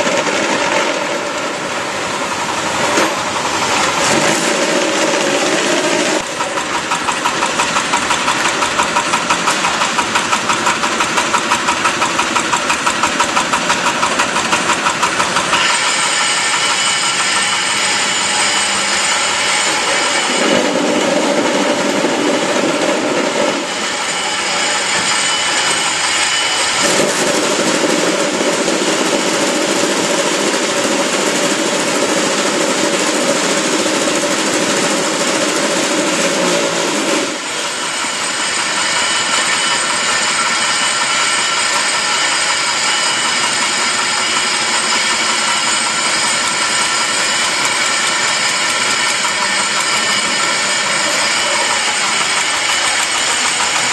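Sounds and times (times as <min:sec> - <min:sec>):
block making machine din: 0:00.0 - 0:53.9.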